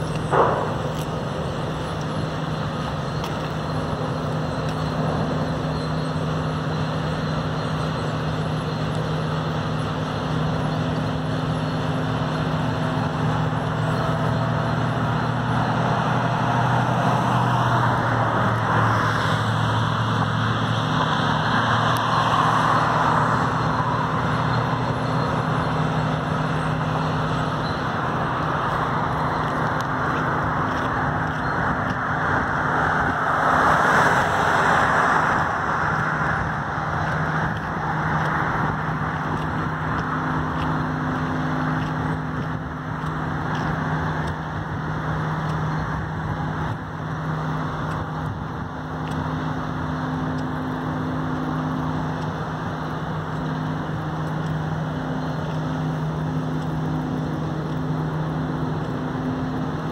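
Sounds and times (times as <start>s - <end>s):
vehicle passing: 12.0s - 59.9s.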